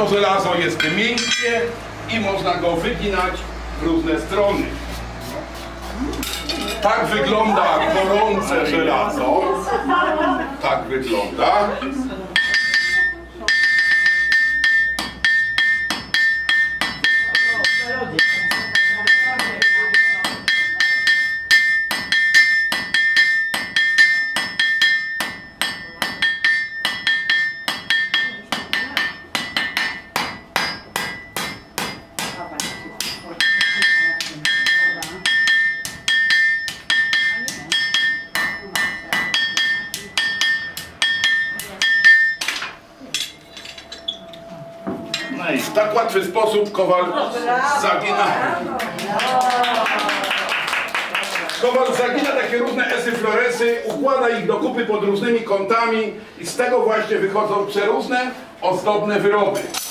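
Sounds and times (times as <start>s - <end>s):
hammer striking iron on anvil: 0.8s - 1.6s, 12.4s - 45.4s
metallic anvil ring: 0.8s - 1.7s, 12.4s - 45.8s, 59.6s - 59.9s.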